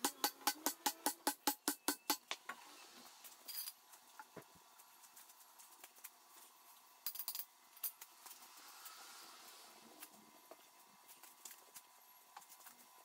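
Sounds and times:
metal tools clinking on concrete: 0:03.4 - 0:03.8.

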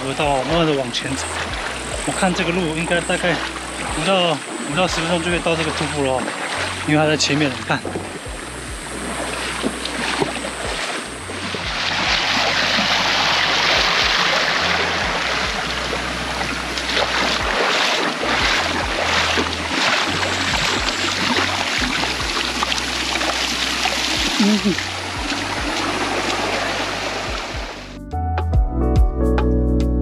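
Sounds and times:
stream water rushing: 0:00.0 - 0:28.0
wind rumble on microphone: 0:04.6 - 0:27.9.

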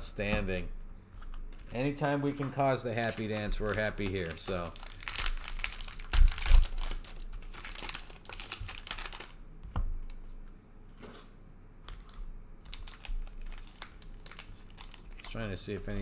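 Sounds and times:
trading cards clicking and rustling: 0:01.2 - 0:09.3.

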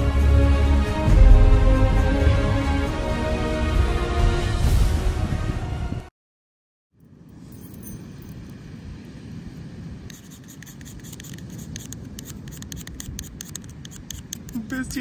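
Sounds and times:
striker scraping ferro rod: 0:10.1 - 0:14.7.

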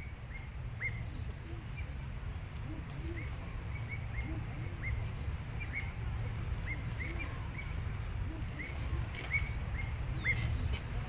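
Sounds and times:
bird chirping: 0:02.9 - 0:10.8.

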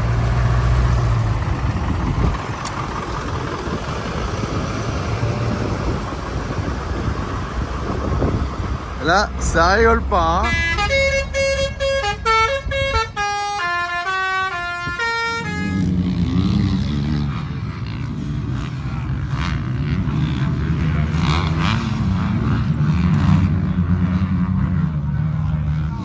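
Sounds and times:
motorcycle engines revving: 0:00.0 - 0:26.0
horn playing quick tune: 0:10.4 - 0:15.8.

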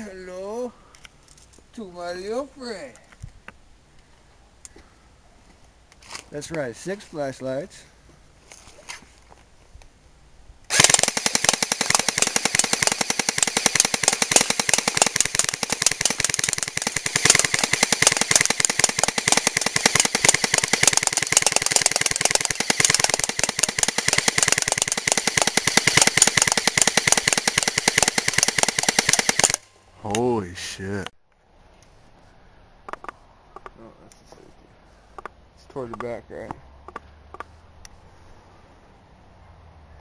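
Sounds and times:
airsoft gun full-auto burst: 0:10.7 - 0:29.7.

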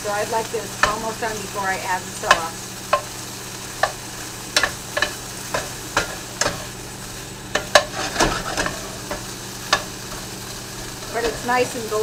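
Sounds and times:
chicken sizzling: 0:00.0 - 0:12.0
utensil scraping a pan: 0:07.5 - 0:11.6.

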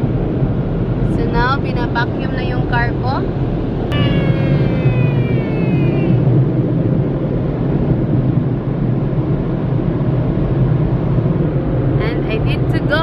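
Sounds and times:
thin high whine: 0:03.9 - 0:06.6.

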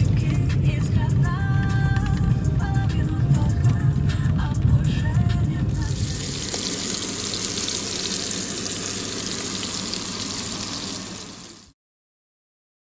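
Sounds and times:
fish sizzling in oil: 0:05.8 - 0:11.8.

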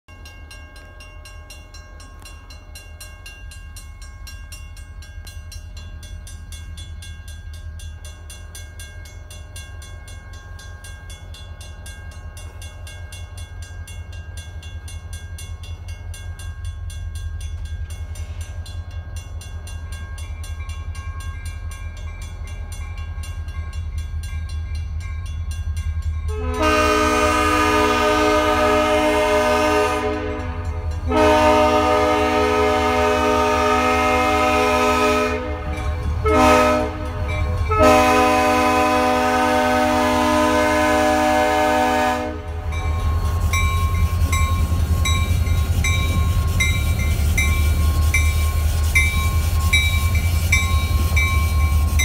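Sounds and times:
crossing bell ringing: 0:00.1 - 0:52.0
diesel locomotive rumble: 0:00.2 - 0:52.0
locomotive horn: 0:26.3 - 0:42.8.

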